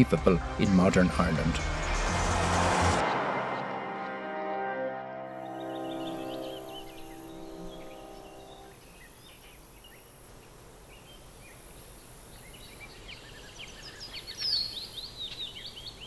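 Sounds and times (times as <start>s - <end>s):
soft music: 0.0s - 8.7s
small birds chirping: 5.5s - 16.0s.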